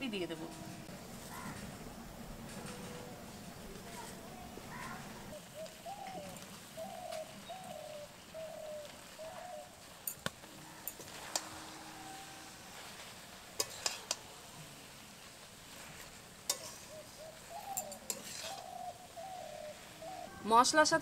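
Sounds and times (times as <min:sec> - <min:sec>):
bird cooing: 0:04.0 - 0:12.9, 0:16.5 - 0:20.5
spatula tapping steel pan: 0:13.6 - 0:14.2.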